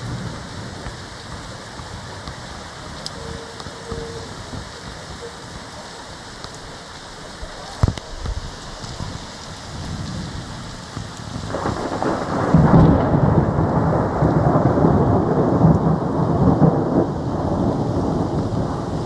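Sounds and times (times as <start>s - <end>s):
steady rain: 0.0s - 19.0s
thunder rumbling: 7.8s - 19.0s.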